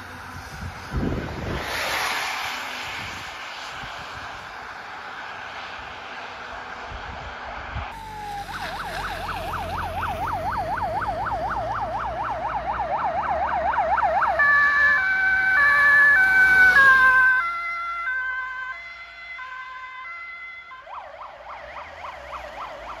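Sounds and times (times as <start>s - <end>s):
yelping siren: 7.9s - 23.0s
two-tone siren horn: 8.0s - 23.0s.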